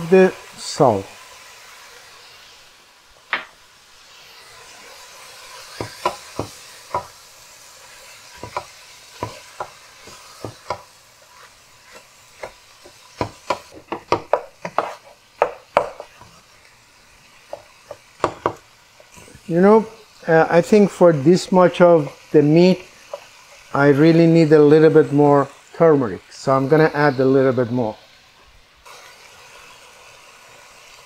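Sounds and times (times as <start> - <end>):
meat sizzling in a frying pan: 0.0 - 31.0
spatula knocking and scraping pan: 5.7 - 7.2, 8.3 - 16.4, 17.4 - 18.6, 23.0 - 23.6.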